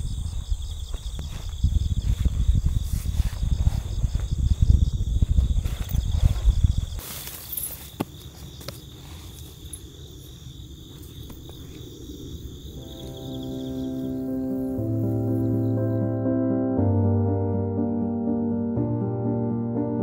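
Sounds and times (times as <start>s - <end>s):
wind rumbling on microphone: 0.0s - 7.0s
footsteps on grassy path: 0.0s - 12.4s
crickets chirring: 0.0s - 16.3s.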